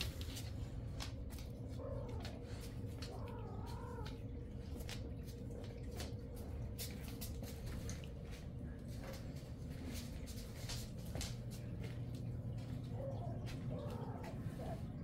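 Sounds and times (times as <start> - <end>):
cat meowing: 3.0 - 4.3.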